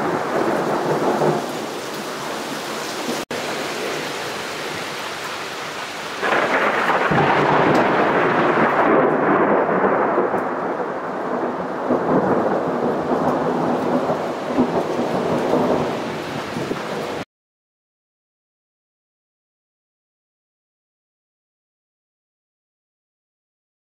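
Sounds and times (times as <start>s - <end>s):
thunder rumble: 0.0s - 2.2s, 6.2s - 17.2s
steady rain: 0.0s - 17.3s.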